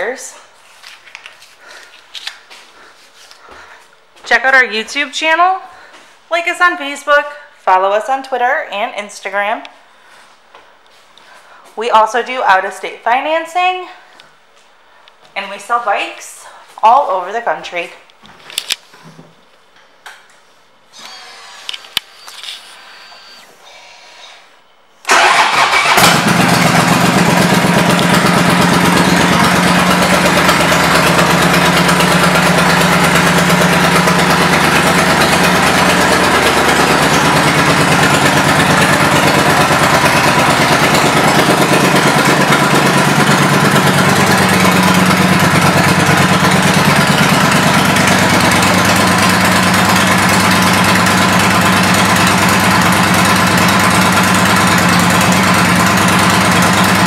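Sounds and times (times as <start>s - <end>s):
motorcycle engine starting and idling: 25.1s - 57.0s.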